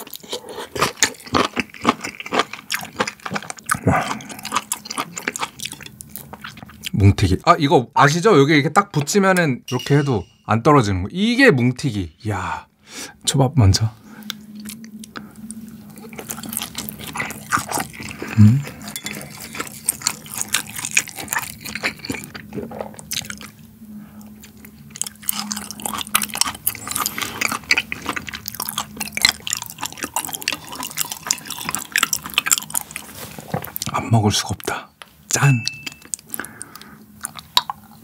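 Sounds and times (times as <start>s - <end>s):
wet chewing and mouth smacking: 0.0s - 7.0s, 14.2s - 34.0s, 35.6s - 38.0s.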